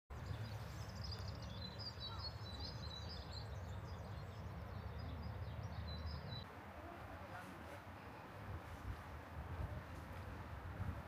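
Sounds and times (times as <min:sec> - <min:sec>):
songbirds chirping and trilling: 0:00.1 - 0:06.5.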